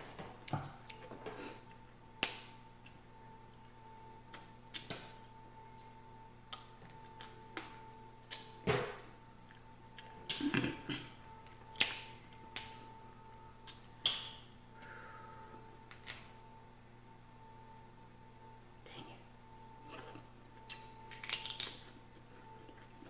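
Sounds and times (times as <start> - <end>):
faint steady hum: 0.0 - 23.0
shellfish shells cracking: 20.7 - 22.0.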